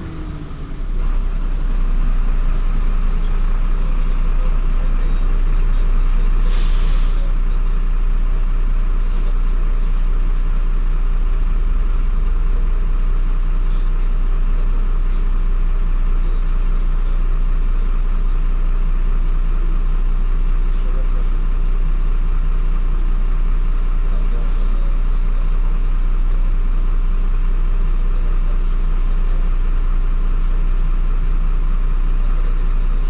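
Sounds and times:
bus engine drone: 0.0 - 33.0
compressed air hiss: 6.4 - 7.3.

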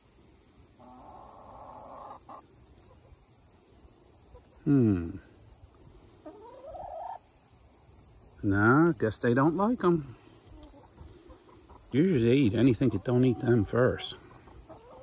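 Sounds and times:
insects chirring: 0.0 - 15.0
hens calling: 0.8 - 3.2, 6.1 - 7.3, 8.5 - 15.0.

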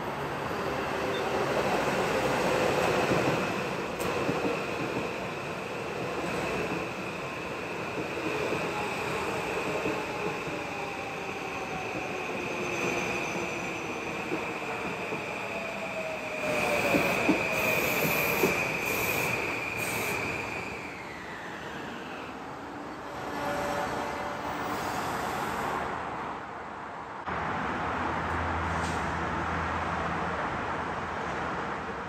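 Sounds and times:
train wheel squeal: 1.0 - 1.5, 8.5 - 22.4.

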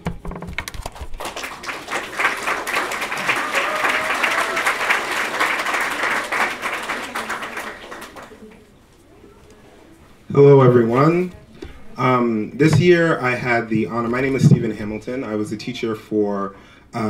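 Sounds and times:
audience applauding: 0.7 - 8.7.

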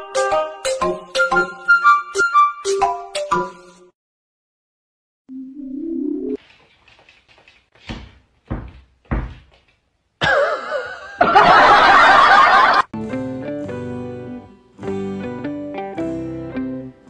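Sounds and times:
dull thumps: 7.7 - 9.9
guitar music: 13.0 - 17.0.

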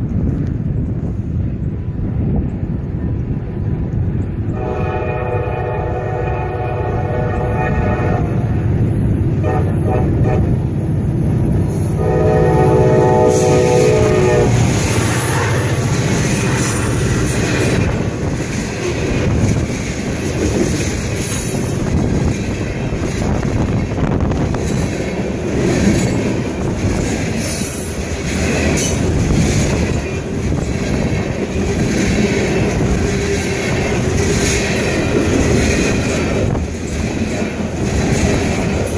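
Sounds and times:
freight train rumbling: 0.0 - 38.9
locomotive horn blast: 4.5 - 8.7, 9.4 - 10.8, 11.8 - 15.7
wheels clattering over rail joints: 14.6 - 38.9.

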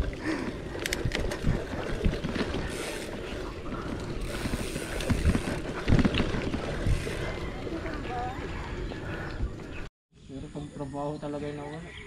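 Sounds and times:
bike rattles and knocks: 0.0 - 8.3
bicycle rolling on rough surface: 0.0 - 9.9
wind buffeting the microphone: 0.0 - 9.9.

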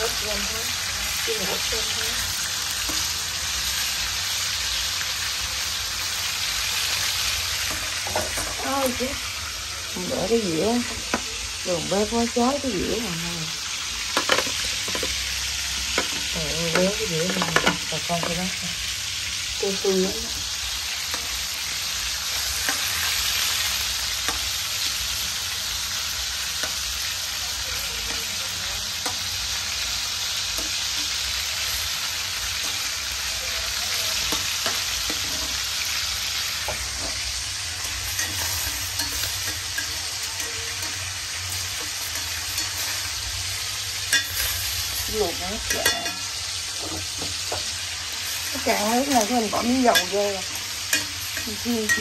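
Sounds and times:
meat sizzling in oil: 0.0 - 52.0
metal tongs clicking on pan: 15.9 - 18.4, 22.4 - 25.0, 29.0 - 29.4, 30.3 - 31.4, 36.6 - 43.1, 44.0 - 44.8, 45.6 - 48.4, 49.0 - 52.0.

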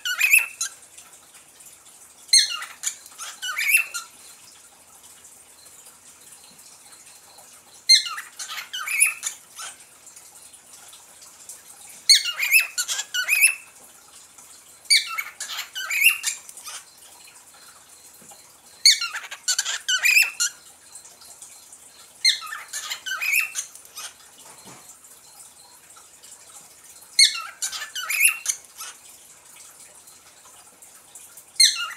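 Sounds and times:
parrot chirping: 0.0 - 0.8, 2.3 - 4.4, 7.3 - 9.8, 12.1 - 13.7, 14.9 - 18.0, 18.7 - 20.6, 22.0 - 24.9, 27.2 - 29.0, 31.6 - 31.9.

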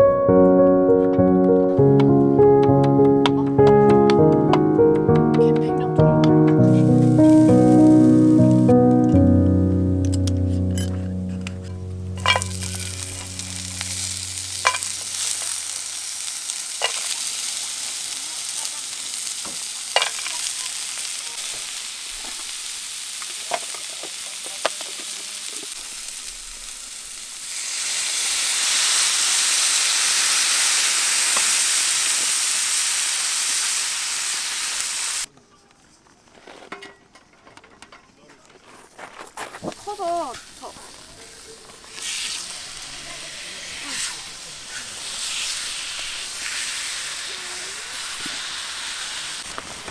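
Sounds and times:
food sizzling in a pan: 6.6 - 8.7, 10.7 - 35.3, 39.7 - 49.9.

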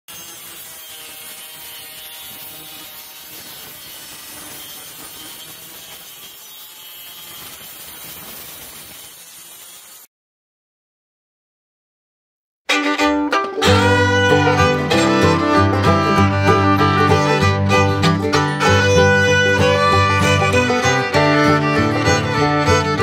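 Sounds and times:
circular saw cutting board: 0.1 - 10.1, 12.8 - 23.0.

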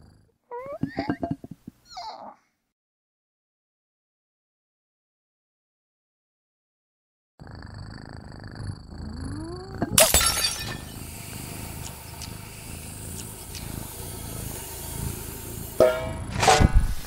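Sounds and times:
cartoon cat purring: 0.0 - 2.4, 7.4 - 17.0
vase shattering: 9.9 - 11.0
sugar pouring hiss: 9.9 - 15.9.

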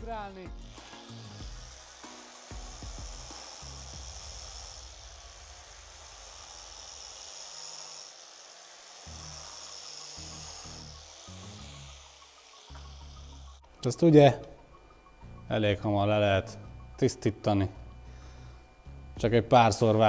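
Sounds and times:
angle grinder cutting: 0.0 - 14.1.

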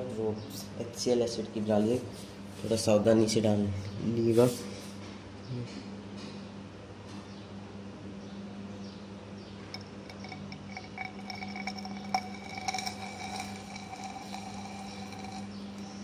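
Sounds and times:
glass test tube ringing: 9.7 - 16.0.

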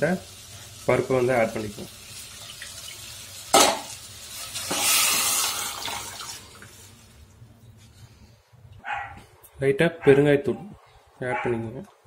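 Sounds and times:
wet splashing sizzle: 0.0 - 7.4.

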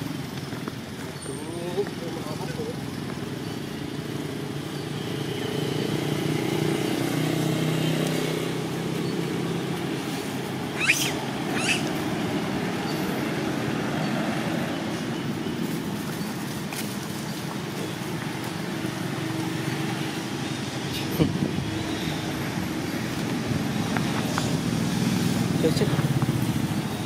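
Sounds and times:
vehicle engine humming: 0.0 - 27.0
short high-pitched squeaks: 10.8 - 12.0.

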